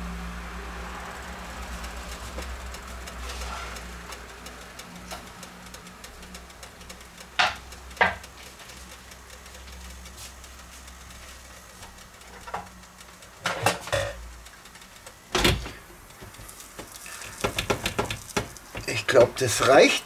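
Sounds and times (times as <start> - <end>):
steady low hum: 0.0 - 20.0
sharp clicks and knocks: 1.5 - 19.8
metal grill lid clattering: 13.4 - 14.2.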